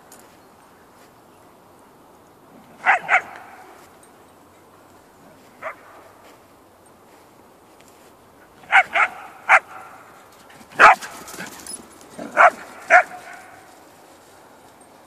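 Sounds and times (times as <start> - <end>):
dog barking: 2.8 - 3.6, 5.6 - 6.1, 8.6 - 10.1, 10.8 - 11.2, 12.2 - 13.7.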